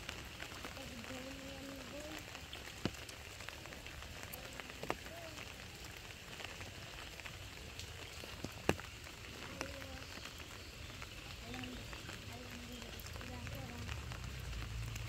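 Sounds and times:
steady rain hiss: 0.0s - 15.0s.

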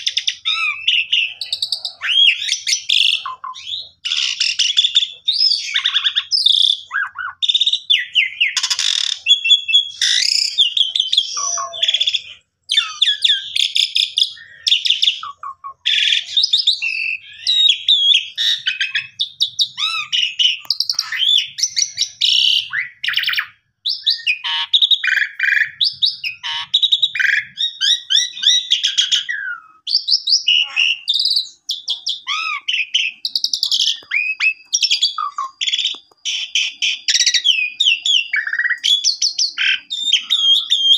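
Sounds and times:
starling singing: 0.0s - 40.9s.

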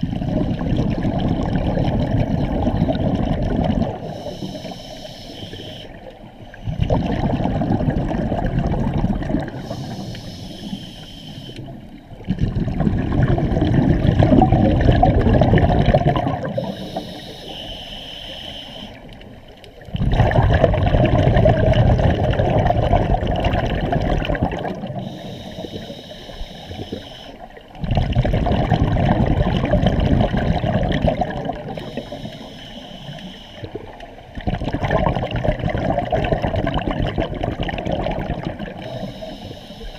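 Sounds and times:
rumbling exhaust bubbles: 0.0s - 4.1s, 6.6s - 9.7s, 12.2s - 16.8s, 19.9s - 25.1s, 27.8s - 32.0s, 33.8s - 38.9s
regulator inhalation hissing whistle: 4.1s - 6.0s, 9.6s - 11.7s, 16.6s - 19.1s, 25.0s - 27.4s, 31.8s - 33.7s, 38.8s - 39.9s.

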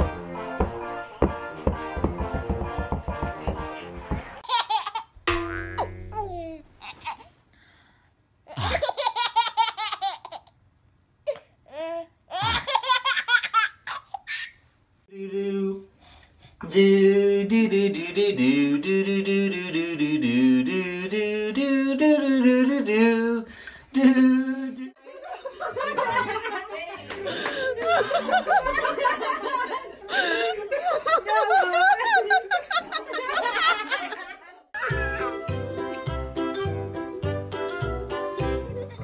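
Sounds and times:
baby giggling: 4.4s - 7.3s, 8.5s - 10.6s, 11.3s - 14.6s
person singing or humming: 15.1s - 16.0s, 16.6s - 25.0s.

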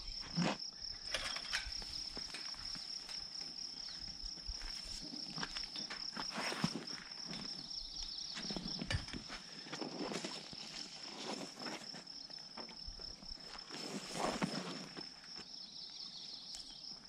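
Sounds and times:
high-pitched insect trill: 0.0s - 17.0s.

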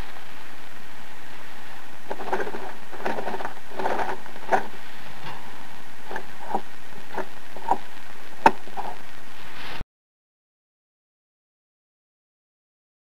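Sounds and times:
steady hiss: 0.0s - 9.8s.

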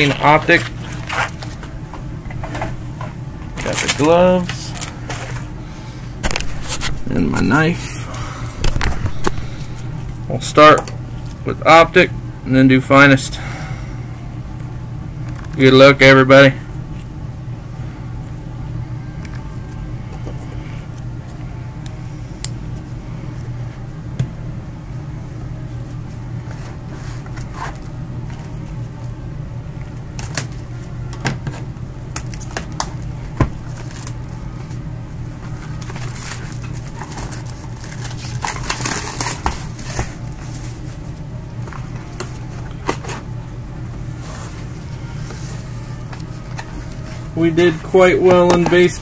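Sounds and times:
crinkly rustling: 0.0s - 1.7s, 35.4s - 41.2s
steady low hum: 0.0s - 49.0s.

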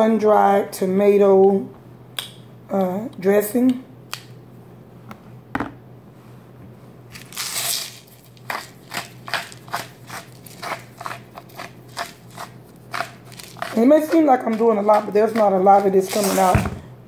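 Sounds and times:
salt grinder crunching: 7.2s - 16.6s.

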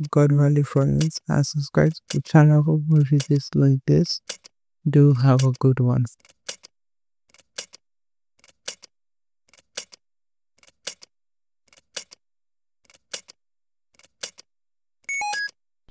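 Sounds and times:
sharp mechanical timer clicks: 5.3s - 5.6s, 7.3s - 7.8s.

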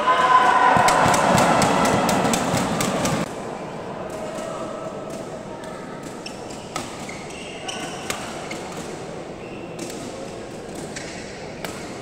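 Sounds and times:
spectators chattering: 0.0s - 10.7s
shoes squeaking on court floor: 6.2s - 9.9s.

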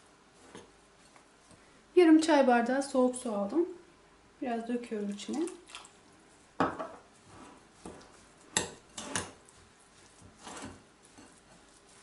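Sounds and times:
metal spoon scraping glass bowl: 8.6s - 9.4s, 10.4s - 11.5s.

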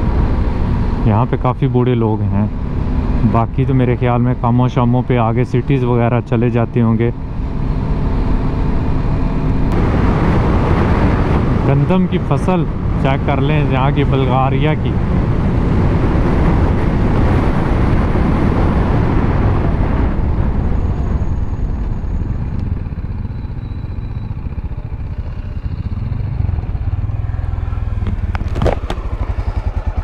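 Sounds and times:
motorcycle engine: 0.0s - 30.0s
wind rushing: 7.7s - 13.9s, 14.8s - 23.0s.

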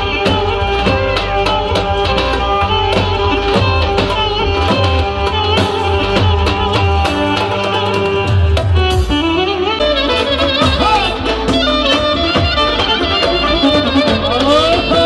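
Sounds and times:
hand drum strokes: 0.0s - 15.0s
melody instrument playing: 0.0s - 15.0s.

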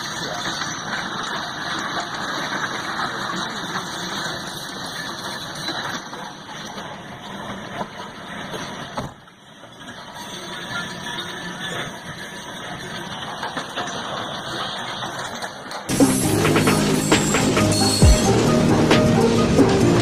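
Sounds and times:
freight train rumbling past: 15.9s - 20.0s.

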